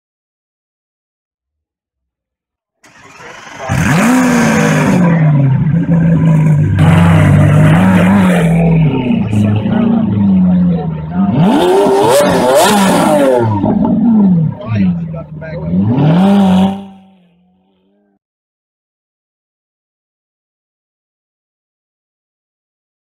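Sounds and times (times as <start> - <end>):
car engine starting and revving: 2.8 - 17.2.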